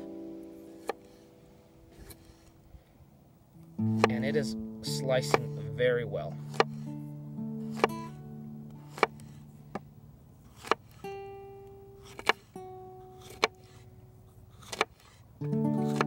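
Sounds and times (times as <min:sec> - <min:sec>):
guitar music: 0:00.0 - 0:02.9, 0:03.5 - 0:14.2, 0:15.3 - 0:16.0
knife chopping on wooden board: 0:00.8 - 0:01.0, 0:03.9 - 0:04.2, 0:05.2 - 0:05.6, 0:06.4 - 0:06.9, 0:07.6 - 0:08.1, 0:08.9 - 0:09.8, 0:10.5 - 0:11.0, 0:12.0 - 0:12.4, 0:13.2 - 0:13.8, 0:14.6 - 0:15.1.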